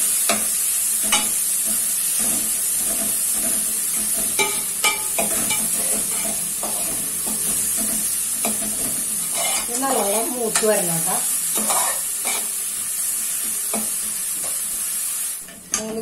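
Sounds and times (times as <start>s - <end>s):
food sizzling in hot oil: 0.0s - 16.0s
metal spatula scraping pot: 2.2s - 9.8s, 11.5s - 12.5s.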